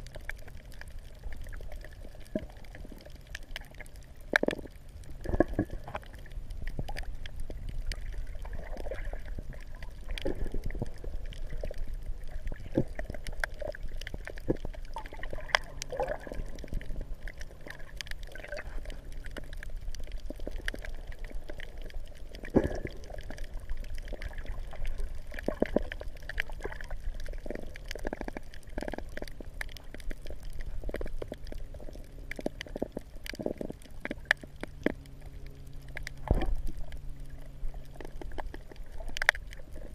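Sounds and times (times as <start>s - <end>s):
steady low rumble: 0.0s - 39.9s
water gurgling and sloshing: 0.0s - 39.9s.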